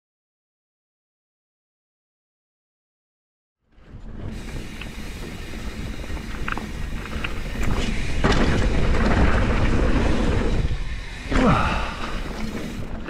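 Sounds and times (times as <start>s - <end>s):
bike tyres rumbling and rattling: 3.7s - 13.0s
wind buffeting microphone: 3.8s - 13.0s.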